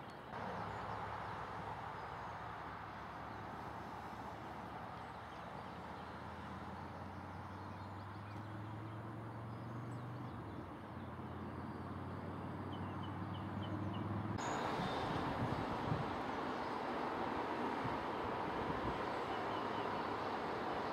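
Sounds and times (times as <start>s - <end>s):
airy hiss: 14.4s - 20.9s.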